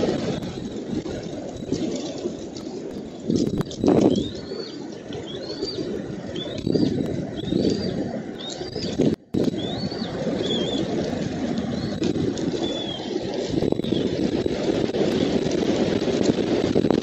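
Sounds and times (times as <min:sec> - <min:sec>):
low wind rustling on microphone: 0:00.0 - 0:17.0
eaglet chirping: 0:03.8 - 0:10.9.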